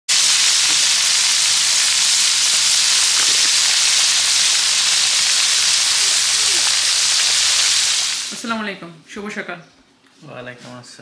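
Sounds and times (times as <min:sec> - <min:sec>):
hot oil sizzling in wok: 0:00.1 - 0:08.5.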